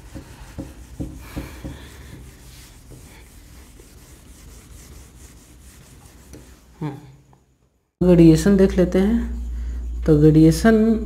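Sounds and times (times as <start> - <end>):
palm rubbing a whiteboard: 0.0 - 6.8.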